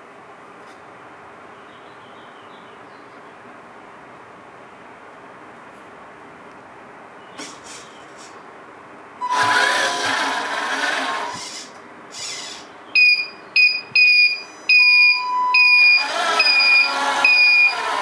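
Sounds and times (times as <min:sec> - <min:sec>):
hiss: 0:07.4 - 0:08.4, 0:09.7 - 0:12.7
high electronic beeps: 0:13.0 - 0:17.8.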